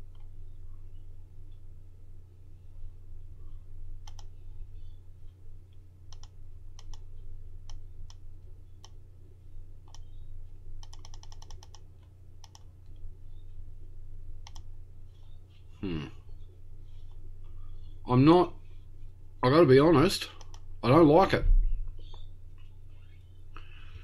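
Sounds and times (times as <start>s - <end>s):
steady low hum: 0.0s - 24.0s
mouse clicks: 4.0s - 4.4s, 5.7s - 8.2s, 8.8s - 9.0s, 9.8s - 13.0s, 14.4s - 15.4s, 20.4s - 20.7s, 21.9s - 23.3s.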